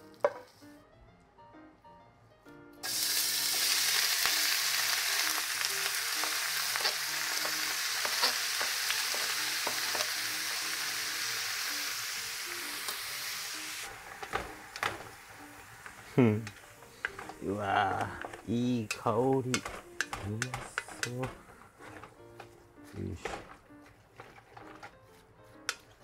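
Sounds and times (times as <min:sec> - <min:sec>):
meat sizzling in hot oil: 0:02.8 - 0:18.0.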